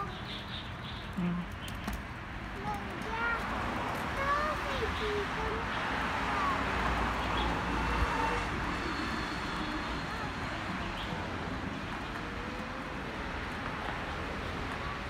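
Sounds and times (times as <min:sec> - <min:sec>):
faint voice: 0:00.0 - 0:00.3
traffic hum: 0:00.0 - 0:15.0.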